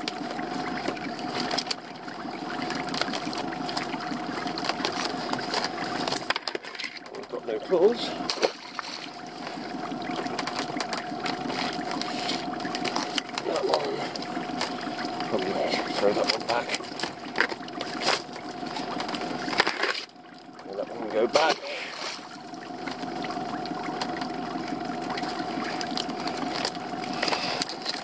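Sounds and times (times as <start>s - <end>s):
boat motor humming: 0.0s - 28.0s
water sloshing: 0.0s - 28.0s.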